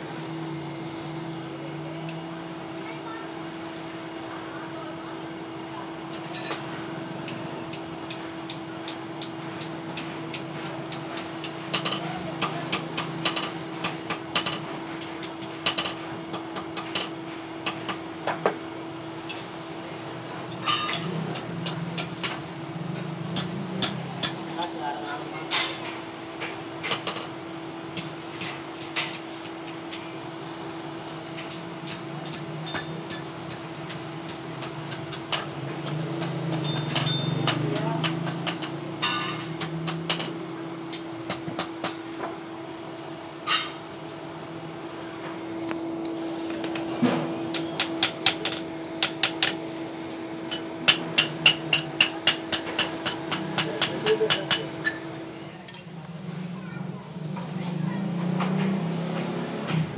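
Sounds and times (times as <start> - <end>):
steady hum: 0.0 - 59.9
hammer striking steel on anvil: 50.5 - 55.0.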